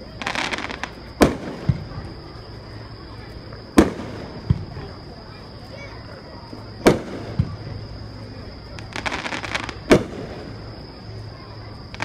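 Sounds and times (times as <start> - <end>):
firework crackling: 0.0 - 12.0
firework booms: 0.2 - 2.3, 3.7 - 5.1, 6.8 - 7.8, 8.7 - 10.7.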